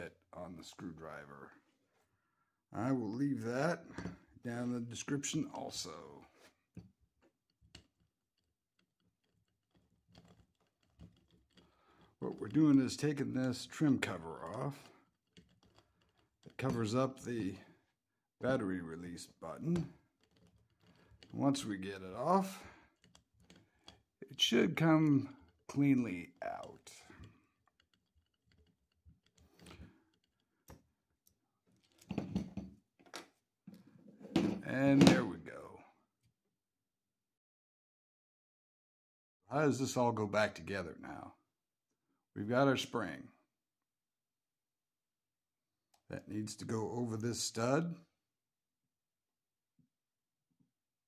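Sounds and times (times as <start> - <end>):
screwdriver clicks and scrapes: 6.4 - 17.6, 19.1 - 33.8.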